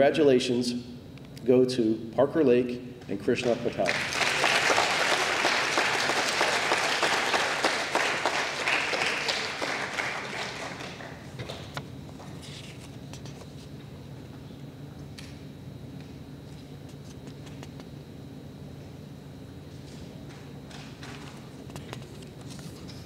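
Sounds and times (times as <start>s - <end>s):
audience applause: 3.8s - 11.6s.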